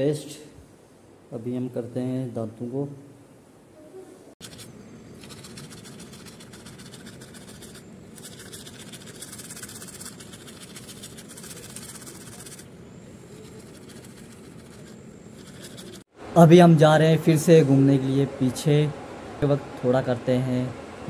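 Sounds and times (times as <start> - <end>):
toothbrush scrubbing teeth: 4.4 - 12.7, 13.3 - 16.0.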